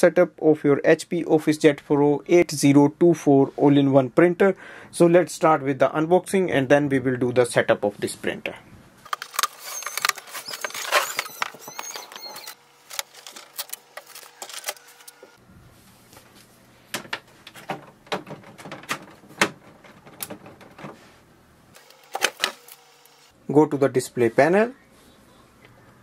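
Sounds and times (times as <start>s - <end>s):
cardboard rustling and crackling: 9.1s - 15.3s
printer being handled: 9.1s - 15.4s, 16.9s - 21.0s, 21.9s - 22.8s.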